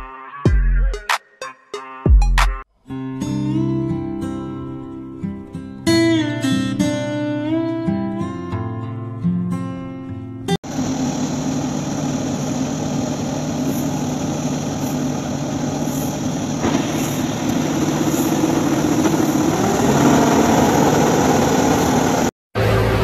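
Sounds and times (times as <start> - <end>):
combine harvester diesel engine: 10.6 - 23.0.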